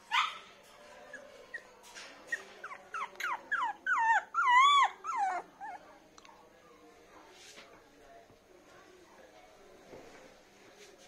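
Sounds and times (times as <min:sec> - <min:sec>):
puppy whimpering: 0:01.0 - 0:05.9.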